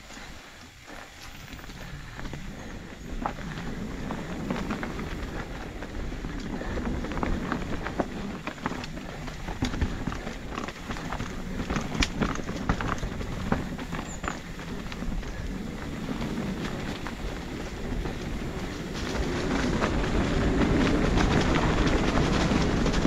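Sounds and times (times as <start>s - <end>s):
bike rattling over rocks: 0.0s - 23.0s
tyres crunching over stones: 0.1s - 23.0s.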